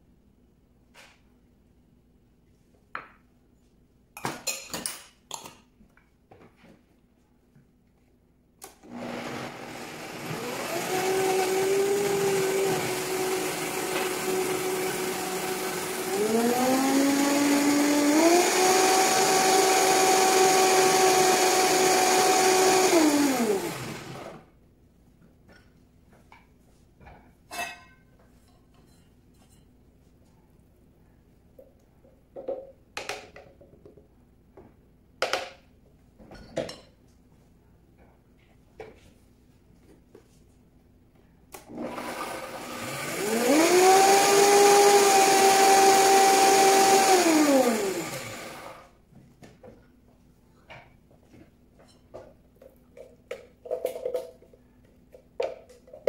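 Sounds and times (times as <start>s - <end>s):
blender motor whine: 8.8s - 24.4s, 41.6s - 48.8s.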